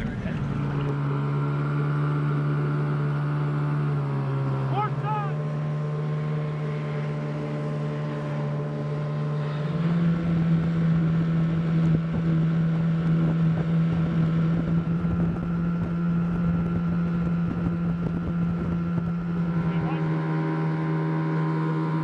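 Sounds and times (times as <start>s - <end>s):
outboard motor running: 0.0s - 22.0s
wind on microphone: 9.7s - 19.8s.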